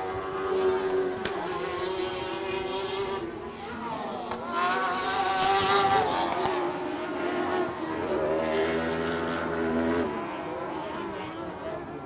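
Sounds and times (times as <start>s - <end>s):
race truck engines revving: 0.0s - 12.0s.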